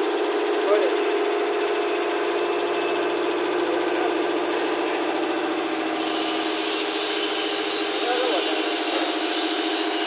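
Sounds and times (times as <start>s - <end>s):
air compressor pump running: 0.0s - 10.0s.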